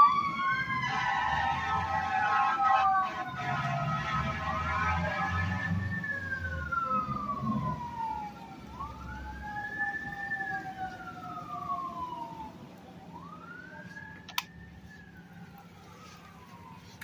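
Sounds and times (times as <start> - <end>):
emergency siren wailing: 0.0 - 17.0
lower siren tone: 0.0 - 17.0.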